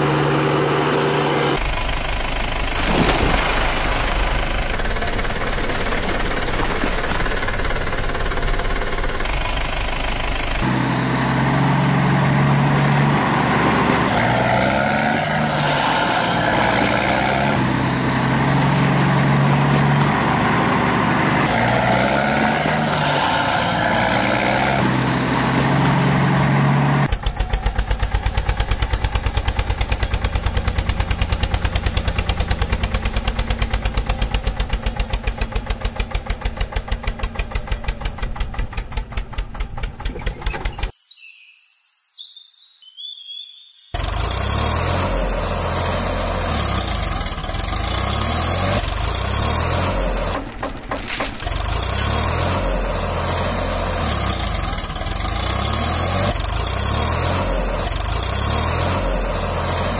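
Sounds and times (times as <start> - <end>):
truck engine running: 0.0 - 40.9, 44.0 - 59.9
tractor engine chugging: 4.0 - 14.4, 24.8 - 40.9, 46.9 - 55.7.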